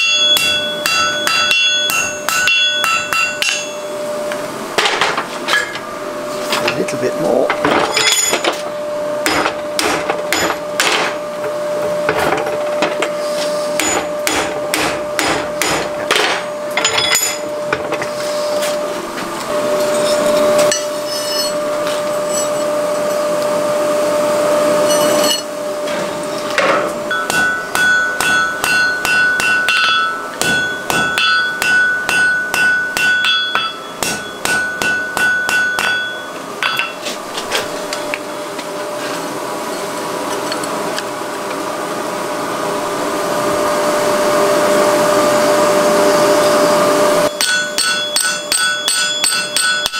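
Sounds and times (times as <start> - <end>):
hammer striking iron on anvil: 0.0 - 4.0, 9.2 - 11.2, 13.8 - 18.1, 19.9 - 21.6, 24.8 - 25.5, 26.6 - 37.0, 47.2 - 49.9
steady hum: 0.0 - 49.9.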